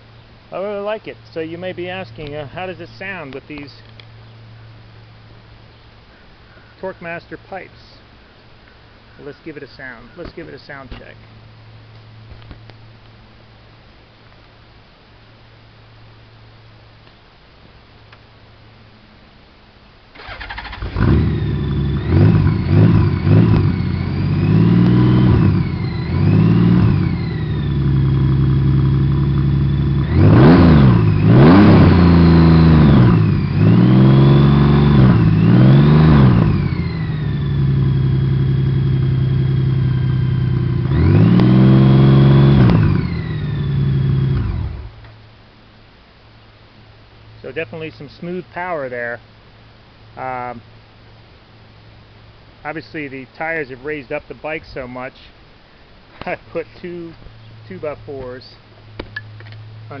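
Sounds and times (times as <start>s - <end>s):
motorcycle engine revving: 20.2s - 45.0s.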